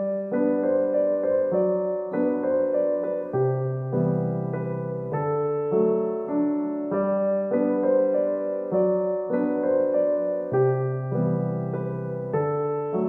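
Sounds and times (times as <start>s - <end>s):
slow gentle keyboard melody: 0.0s - 13.0s.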